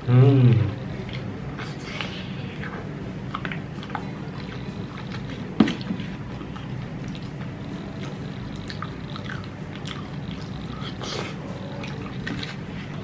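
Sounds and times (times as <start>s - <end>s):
steady low hum: 0.0s - 13.0s
man chewing food: 0.5s - 13.0s.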